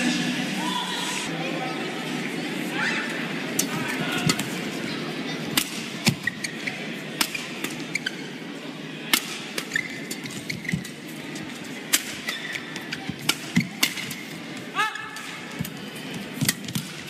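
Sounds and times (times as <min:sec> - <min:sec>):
sports shoes squeaking on court: 0:06.1 - 0:06.9, 0:07.8 - 0:08.4, 0:09.6 - 0:11.1.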